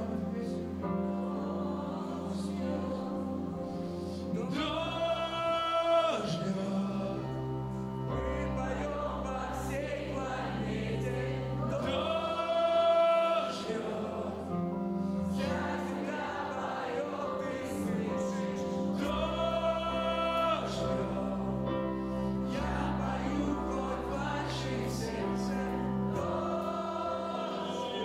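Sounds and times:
congregation singing along: 0:00.0 - 0:28.0
male lead singer: 0:04.3 - 0:10.3, 0:11.7 - 0:14.8, 0:15.4 - 0:28.0.

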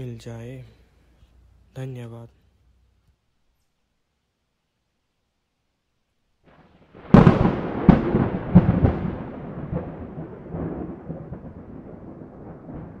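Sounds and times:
thunder cracks: 0:06.5 - 0:13.0
thunder rumble: 0:06.5 - 0:13.0.

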